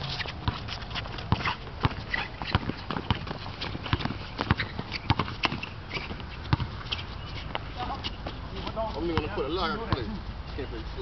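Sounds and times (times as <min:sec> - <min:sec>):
sneakers hitting a court: 0:00.1 - 0:10.2
basketball bouncing: 0:00.3 - 0:06.8, 0:08.2 - 0:10.2.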